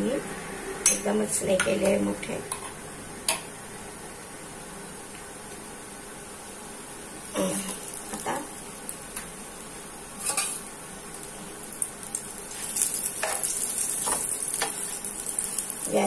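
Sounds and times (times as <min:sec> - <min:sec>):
food sizzling in a pan: 0:06.7 - 0:16.0.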